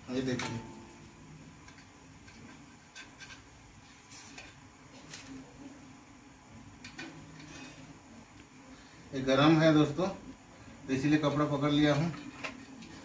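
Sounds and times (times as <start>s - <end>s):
knife scraping metal plate: 2.2s - 3.5s, 7.3s - 7.9s.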